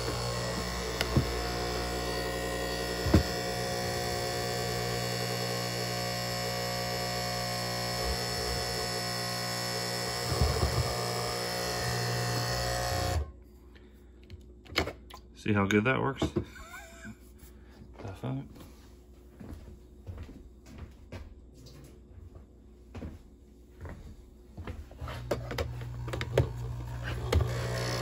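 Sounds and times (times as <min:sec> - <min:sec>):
coffee machine pump buzzing: 0:00.0 - 0:13.4, 0:25.0 - 0:28.0.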